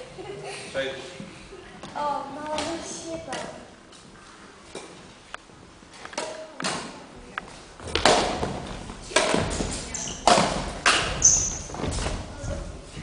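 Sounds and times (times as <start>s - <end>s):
rackets hitting shuttlecock: 7.8s - 12.1s
footsteps thudding on floor: 7.8s - 13.0s.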